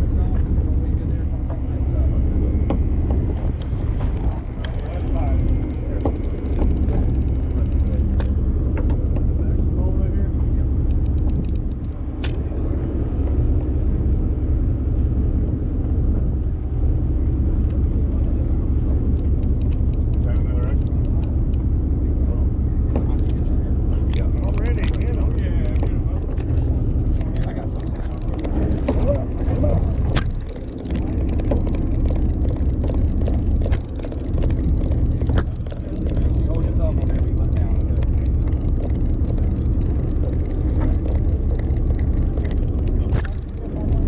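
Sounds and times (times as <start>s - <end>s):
boat engine running: 0.0s - 44.0s
fishing tackle clicks and knocks: 0.9s - 9.3s, 10.9s - 12.4s, 24.0s - 44.0s.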